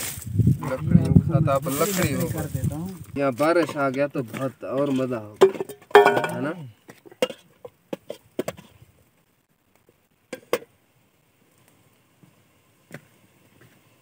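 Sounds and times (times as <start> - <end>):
metal ladle clinking on pot: 5.4 - 6.5.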